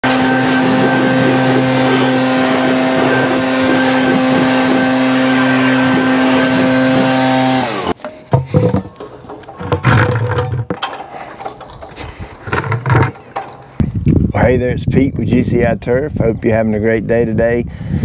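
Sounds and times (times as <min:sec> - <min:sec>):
leaf blower engine running: 0:00.0 - 0:12.0
short knocks: 0:08.0 - 0:11.1.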